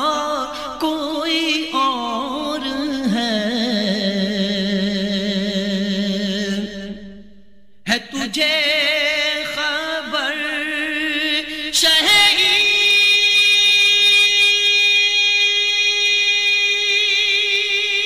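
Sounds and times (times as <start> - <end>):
man singing long held notes: 7.9 - 18.0.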